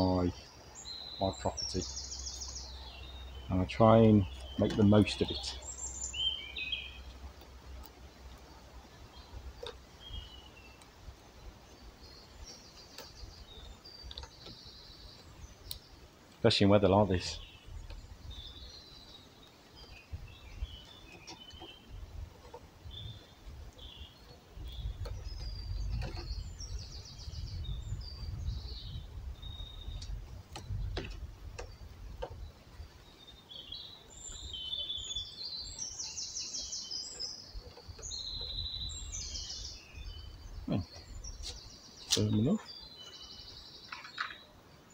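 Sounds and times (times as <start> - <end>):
songbirds chirping and trilling: 0.0 - 44.9
twine rustling and clicking: 3.6 - 5.7, 7.0 - 27.0, 29.8 - 33.1, 37.1 - 42.7.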